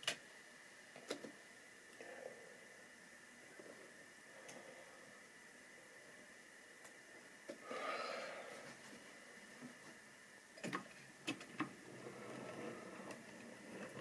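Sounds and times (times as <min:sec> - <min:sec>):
short breath: 0:07.6 - 0:08.8.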